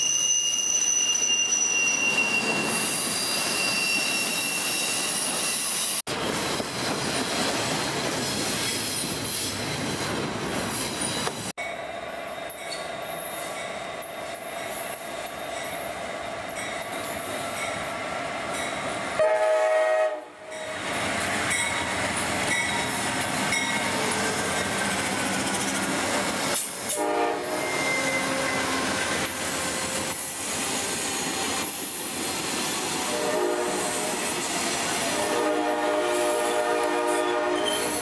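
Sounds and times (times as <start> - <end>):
train rolling past: 0.0 - 38.0
train horn blasts: 19.2 - 20.6, 26.9 - 28.8, 33.1 - 34.2, 35.0 - 38.0.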